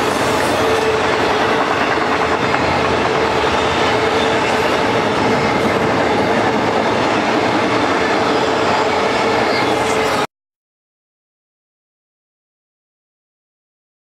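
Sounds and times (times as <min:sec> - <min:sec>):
train wheels rumbling on rail: 0:00.0 - 0:10.3.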